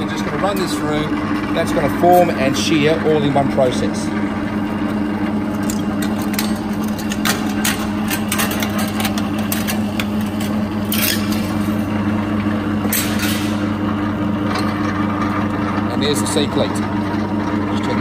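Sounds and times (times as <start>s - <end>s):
electric lockseamer humming: 0.0s - 18.0s.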